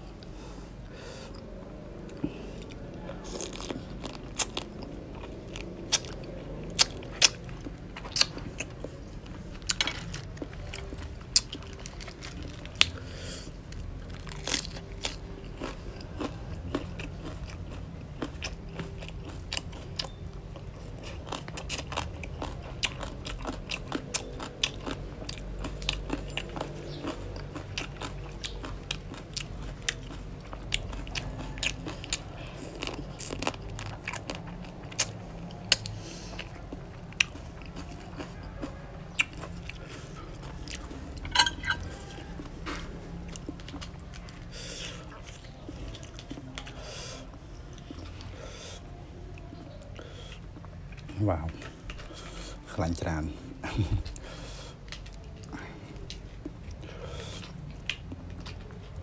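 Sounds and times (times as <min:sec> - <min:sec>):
crab shell crunching while chewed: 0:02.1 - 0:49.0.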